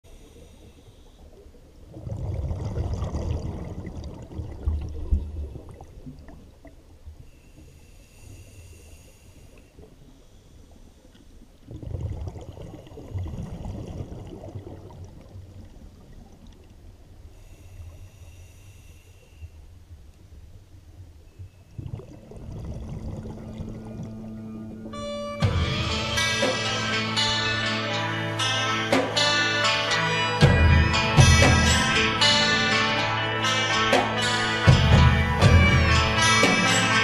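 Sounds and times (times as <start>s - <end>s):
diver breath bubbling underwater: 1.9s - 5.9s.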